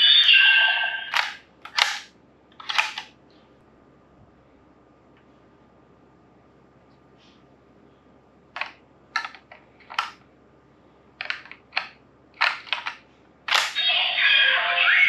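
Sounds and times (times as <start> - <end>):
hard plastic toy clicking: 1.1 - 3.1, 8.6 - 10.2, 11.2 - 13.8.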